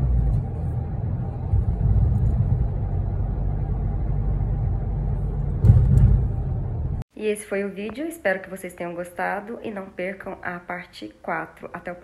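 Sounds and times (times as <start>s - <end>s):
car road and engine rumble: 0.0s - 7.0s
loud thump: 5.5s - 7.0s.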